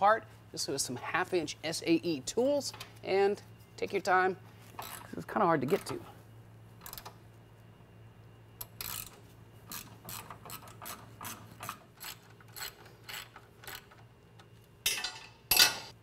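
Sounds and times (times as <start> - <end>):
ratchet wrench clicking: 4.8 - 5.1, 6.8 - 7.1, 8.6 - 14.0.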